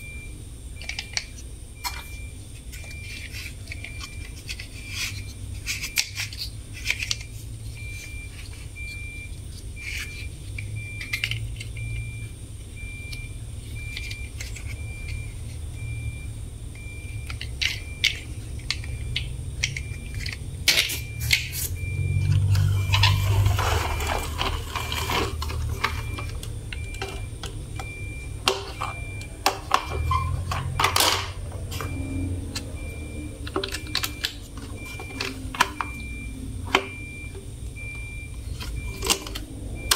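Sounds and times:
steady low hum: 0.0 - 39.9
faint high beep: 21.0 - 25.2, 31.8 - 39.1.

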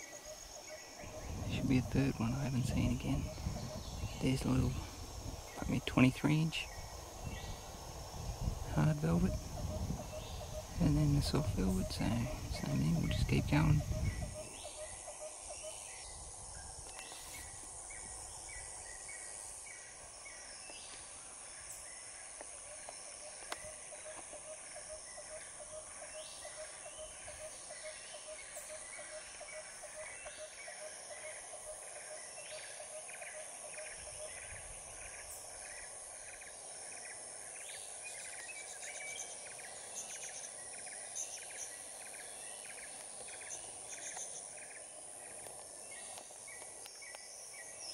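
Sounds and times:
birds calling: 0.0 - 47.9
high-pitched insect drone: 0.0 - 47.9.

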